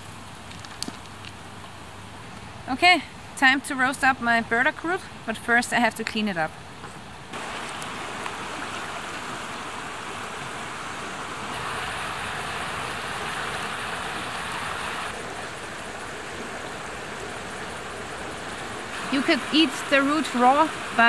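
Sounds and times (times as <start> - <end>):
river rushing over stones: 7.3 - 21.0.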